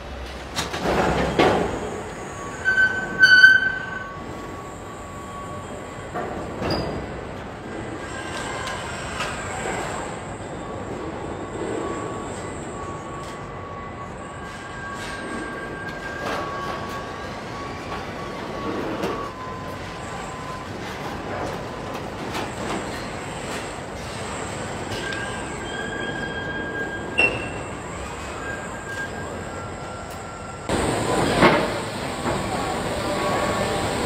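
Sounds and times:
machinery mechanical din: 0:30.7 - 0:34.0.

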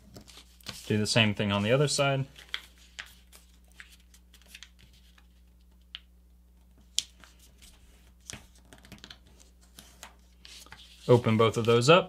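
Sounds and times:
paper rustling and crackling: 0:02.3 - 0:05.9.

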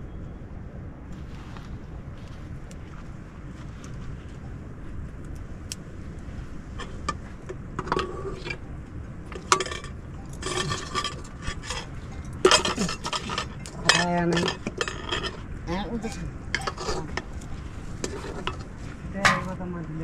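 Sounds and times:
low steady rumble: 0:00.0 - 0:20.0
kitchenware clinking: 0:09.3 - 0:15.4, 0:16.0 - 0:17.3.

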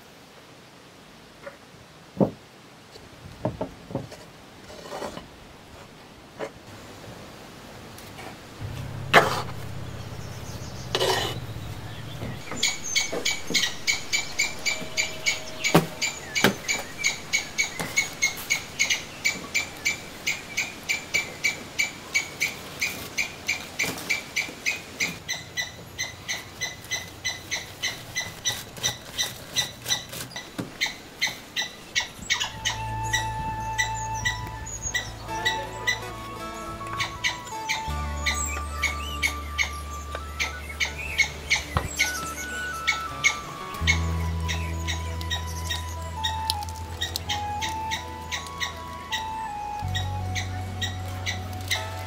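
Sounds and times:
background music: 0:08.6 - 0:20.3, 0:32.4 - 0:52.0
short high-pitched calls: 0:08.6 - 0:21.0.

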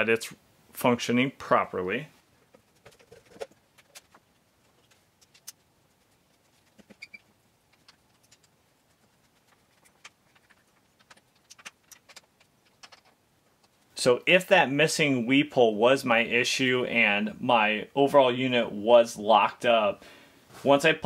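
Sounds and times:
faint clicks and taps: 0:07.7 - 0:13.9.

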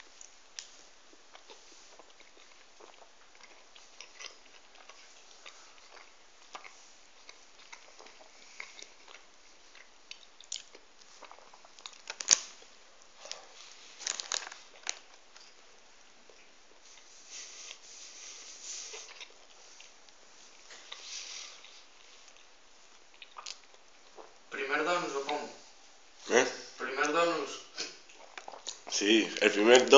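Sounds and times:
person chewing: 0:00.0 - 0:24.5, 0:27.8 - 0:29.9
rustling: 0:11.0 - 0:15.6, 0:16.8 - 0:23.1.

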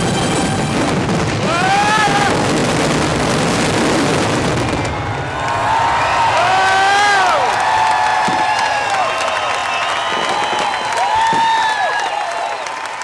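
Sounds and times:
fireworks bursting: 0:00.0 - 0:12.4
person whooping: 0:01.4 - 0:02.5, 0:05.6 - 0:12.6.

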